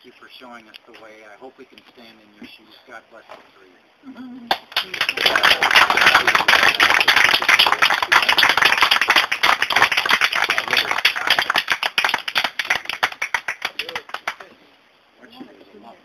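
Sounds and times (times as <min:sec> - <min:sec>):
audience applauding: 0:04.5 - 0:14.5.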